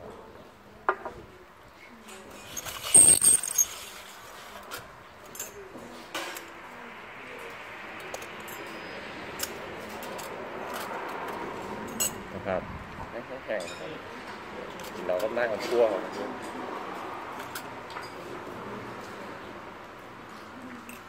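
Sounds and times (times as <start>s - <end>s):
spoons and glass jars clinking: 2.4s - 4.1s.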